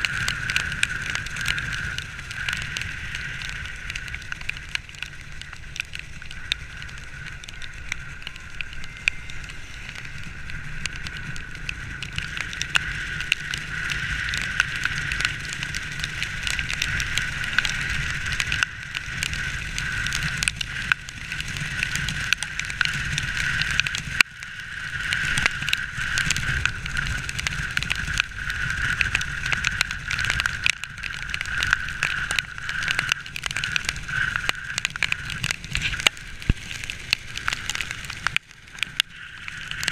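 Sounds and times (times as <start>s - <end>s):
mid-pitched whine: 0.0s - 21.1s
motorcycle engine hum: 0.0s - 39.9s
wind on microphone: 0.0s - 39.9s.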